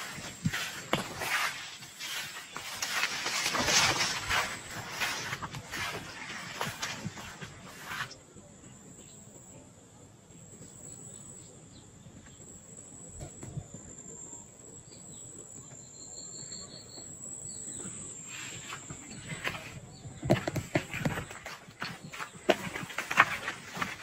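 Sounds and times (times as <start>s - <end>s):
footsteps rustling through leaves: 0.0s - 8.2s, 18.4s - 24.0s.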